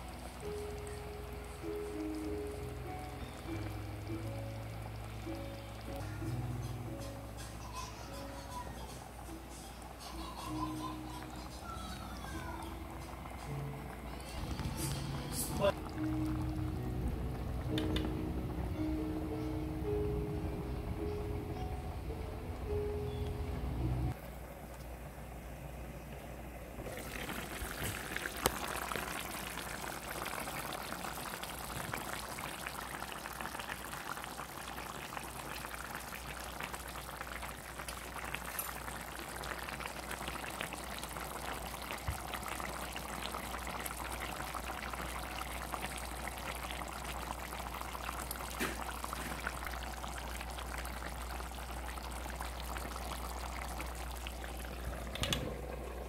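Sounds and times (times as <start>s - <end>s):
broth bubbling in a pan: 0.0s - 19.3s, 24.1s - 56.0s
steady low hum: 12.7s - 27.2s.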